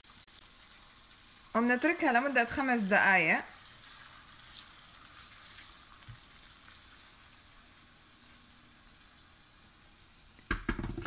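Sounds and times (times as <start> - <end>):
water pouring into a bowl: 2.5 - 10.4
soft knock: 10.5 - 11.0.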